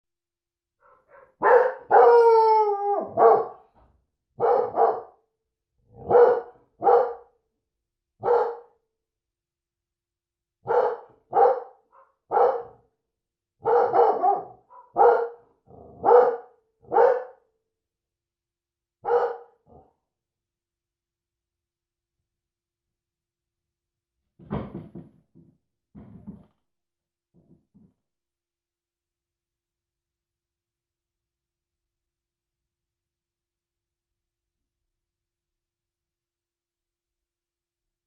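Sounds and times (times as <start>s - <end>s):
dog barking deeply: 0.8s - 2.3s, 3.0s - 3.6s, 4.4s - 5.2s, 6.0s - 7.3s, 8.2s - 8.7s, 10.6s - 12.8s, 13.6s - 17.4s, 19.0s - 20.0s.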